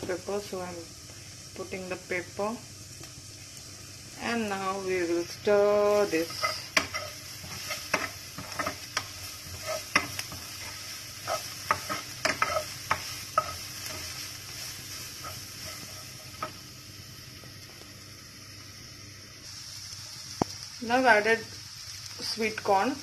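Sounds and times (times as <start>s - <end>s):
vegetables sizzling in a frying pan: 0.0s - 23.0s
wooden spatula scraping a pan: 5.9s - 16.6s.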